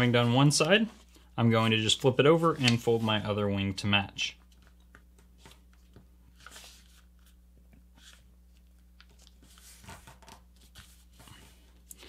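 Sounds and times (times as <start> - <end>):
paper rustling and creasing: 4.5 - 7.4, 8.0 - 12.0.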